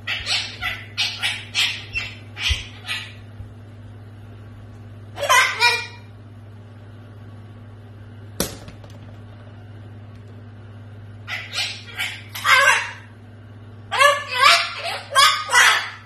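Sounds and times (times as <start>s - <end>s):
steady low hum: 0.0s - 16.0s
cockatoo talking: 5.2s - 6.1s, 11.3s - 13.2s, 13.9s - 16.0s.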